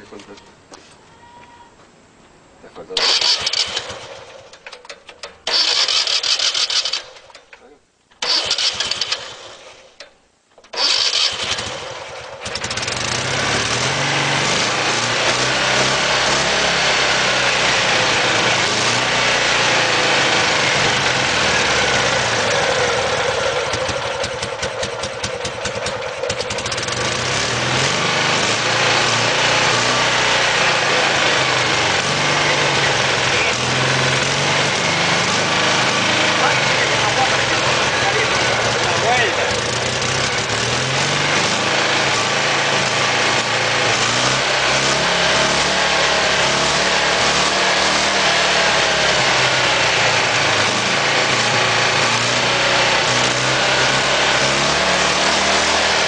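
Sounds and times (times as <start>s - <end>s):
engine running: 3.0s - 7.5s, 8.2s - 10.1s, 10.7s - 56.0s
starter motor cranking: 3.0s - 7.5s, 8.2s - 10.0s, 10.7s - 13.8s, 17.6s - 45.0s.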